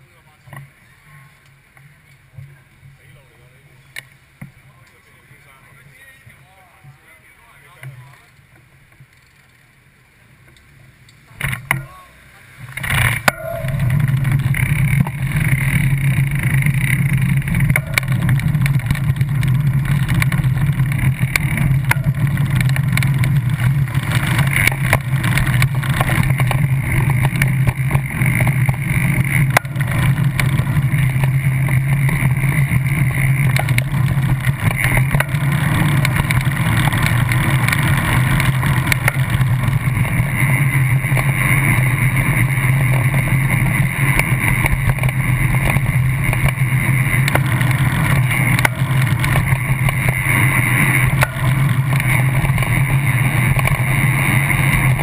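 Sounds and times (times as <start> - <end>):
wind and road noise from bicycle: 0.0 - 55.0.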